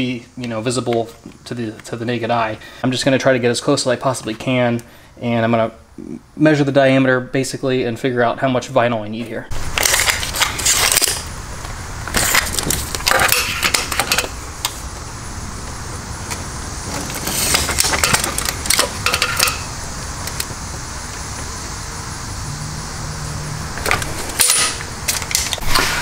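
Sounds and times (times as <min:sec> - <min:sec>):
steady low hum: 0:00.0 - 0:26.0
tape measure blade rattling: 0:09.8 - 0:11.3.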